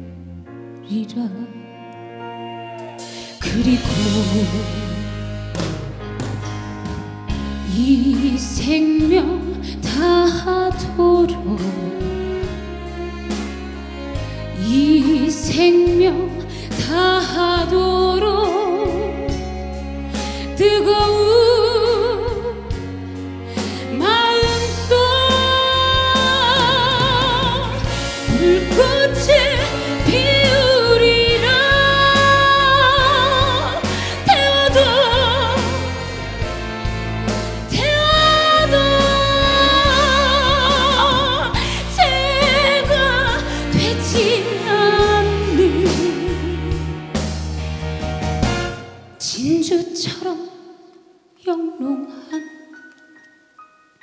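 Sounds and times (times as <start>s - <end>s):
woman singing a slow ballad: 0.8s - 1.9s, 3.1s - 5.7s, 7.5s - 12.5s, 14.6s - 22.9s, 23.5s - 36.1s, 37.7s - 46.7s, 49.2s - 50.7s, 51.4s - 52.7s
live band playing: 1.6s - 49.2s.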